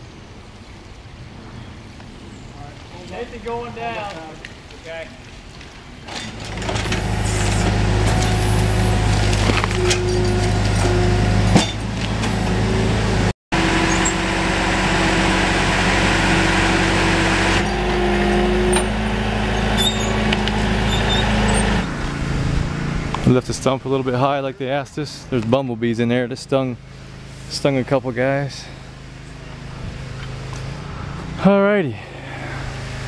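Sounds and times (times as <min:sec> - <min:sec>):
engine running with low hum: 0:05.9 - 0:24.0, 0:24.9 - 0:33.0
hiss: 0:06.9 - 0:09.2.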